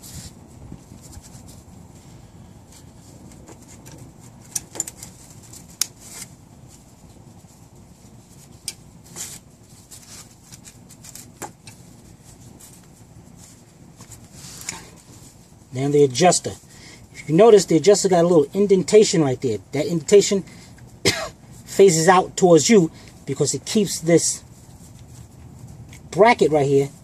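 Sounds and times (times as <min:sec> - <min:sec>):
metal hardware clicking and scraping: 0:02.7 - 0:06.3.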